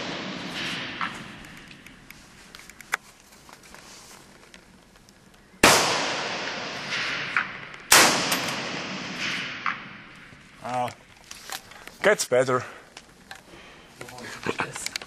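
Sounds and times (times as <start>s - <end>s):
rifle shots echoing: 0.0s - 2.1s, 5.6s - 10.6s.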